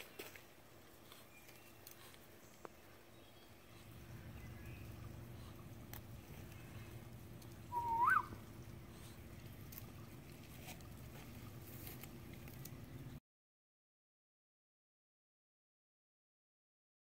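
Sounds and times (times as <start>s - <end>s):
faint background noise: 0.0s - 13.2s
upward sliding whistle: 7.7s - 8.4s.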